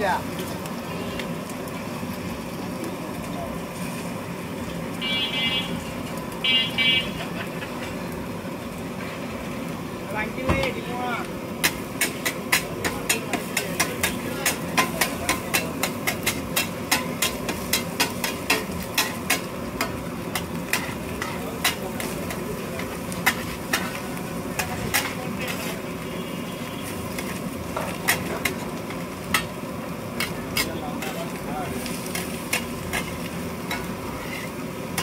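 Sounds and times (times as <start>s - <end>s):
food sizzling: 0.0s - 35.0s
metal spatula clanking on griddle: 11.6s - 25.8s, 27.1s - 29.6s, 30.2s - 31.2s, 31.8s - 35.0s.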